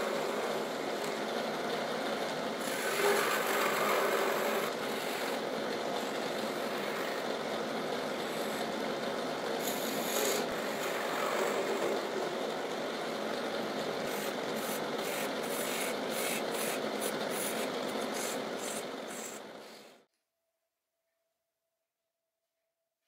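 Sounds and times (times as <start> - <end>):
wood lathe spinning: 0.0 - 20.0
chisel scraping wood: 2.6 - 5.4, 9.6 - 12.2, 14.0 - 19.9.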